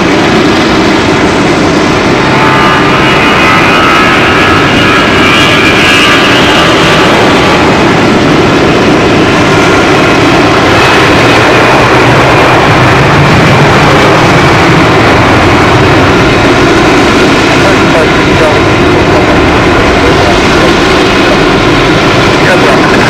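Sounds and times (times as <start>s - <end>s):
high engine whine: 0.0s - 23.0s
jet engines running: 0.0s - 23.0s.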